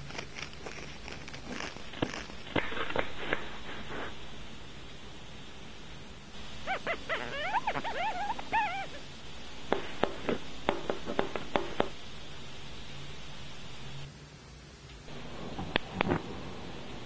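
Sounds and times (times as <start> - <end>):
squeaky whimper-like chirps: 6.6 - 9.1.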